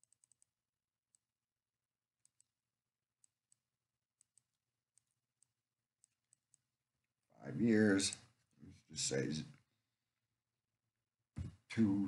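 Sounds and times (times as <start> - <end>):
computer mouse clicking: 0.0 - 1.3, 2.2 - 2.6, 4.2 - 6.7.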